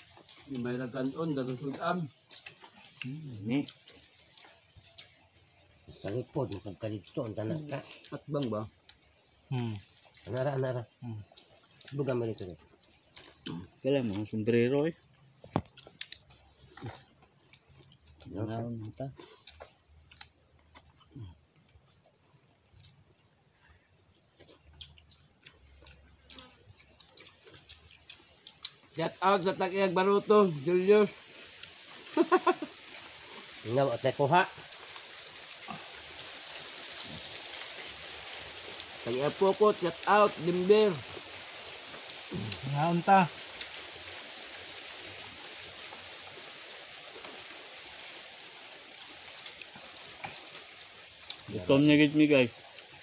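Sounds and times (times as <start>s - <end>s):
people eating and chewing: 0.0s - 53.0s
steady outdoor hiss: 0.0s - 53.0s
person murmuring mm: 42.3s - 42.7s.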